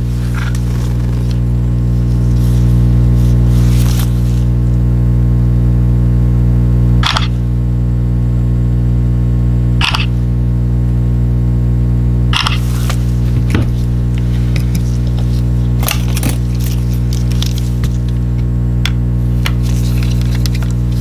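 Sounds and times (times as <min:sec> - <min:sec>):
steady low hum: 0:00.0 - 0:21.0
camera shutter clicks: 0:07.0 - 0:07.3, 0:09.8 - 0:10.1, 0:12.3 - 0:12.6.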